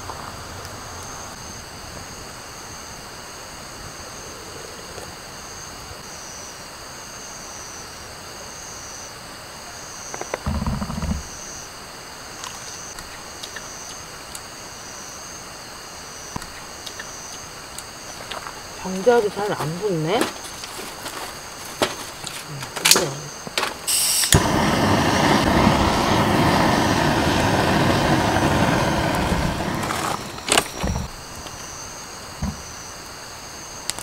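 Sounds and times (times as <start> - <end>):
night insects chirping: 0.0 - 34.0
campfire crackling faintly: 7.3 - 34.0
low rumbling noise: 24.4 - 32.8.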